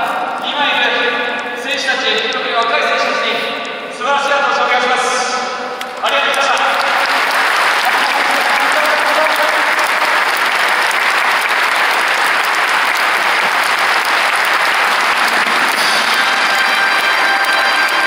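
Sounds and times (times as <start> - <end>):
stadium crowd clapping: 5.7 - 18.0.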